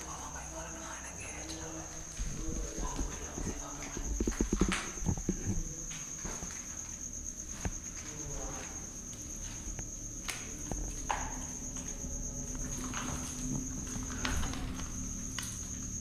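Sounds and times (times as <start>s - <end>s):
cricket trilling: 0.0s - 16.0s.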